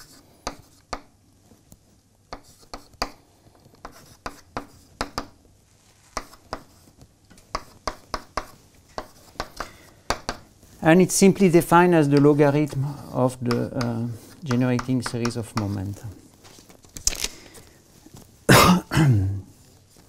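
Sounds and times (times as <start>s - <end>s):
chalk writing on blackboard: 0.0s - 1.2s, 2.3s - 5.4s, 6.0s - 16.2s.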